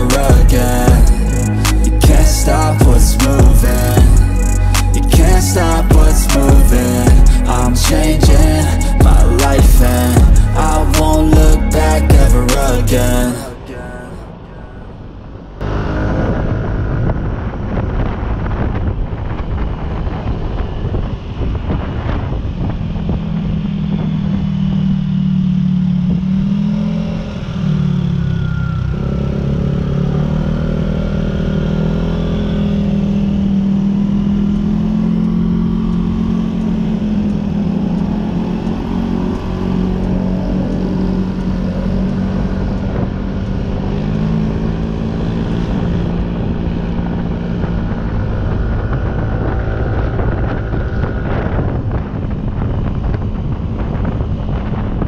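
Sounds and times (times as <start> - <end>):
wind rushing past: 0.0 - 24.4
motorcycle engine cruising: 0.0 - 55.0.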